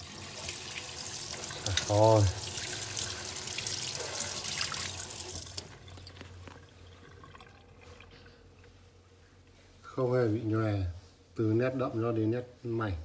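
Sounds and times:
tap water splashing on paper: 0:04.4 - 0:06.7.

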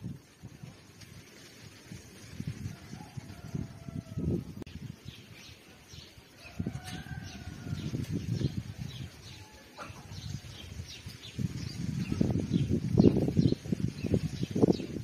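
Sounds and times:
small birds chirping: 0:04.8 - 0:15.0.

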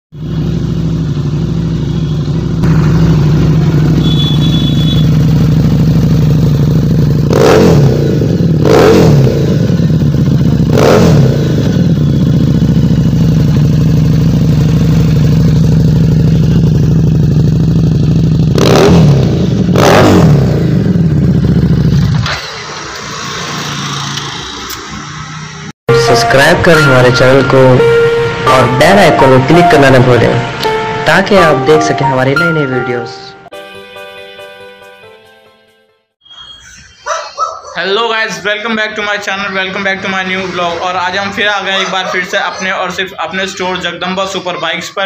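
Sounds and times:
motorcycle engine idling: 0:00.2 - 0:07.4, 0:09.4 - 0:18.6, 0:20.6 - 0:22.2
quick throttle revs: 0:07.2 - 0:09.8, 0:10.6 - 0:12.0, 0:18.5 - 0:21.0, 0:21.8 - 0:25.2.

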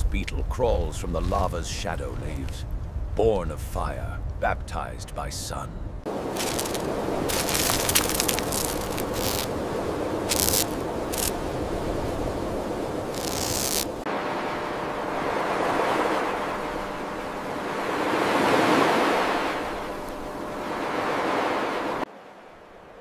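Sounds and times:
steady rushing noise: 0:00.6 - 0:23.0
ocean waves washing: 0:03.1 - 0:23.0
irregular crackling: 0:06.3 - 0:11.6, 0:12.8 - 0:14.1.

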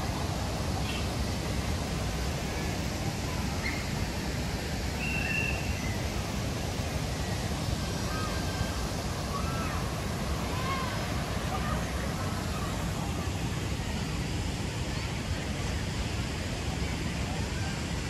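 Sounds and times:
bird chirps and whistles: 0:05.0 - 0:06.0.

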